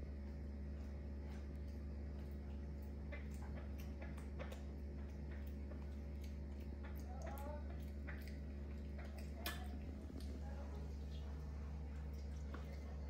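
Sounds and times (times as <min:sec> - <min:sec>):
steady low hum: 0:00.0 - 0:13.0
small clicks and taps: 0:00.8 - 0:08.4.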